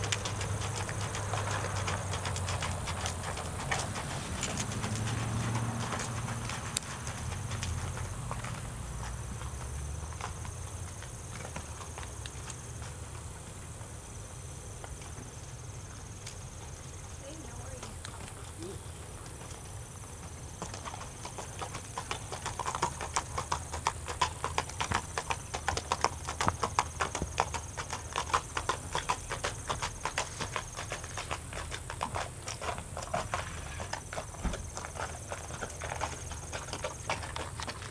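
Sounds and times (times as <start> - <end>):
horse hooves on gravel: 0.0 - 37.9.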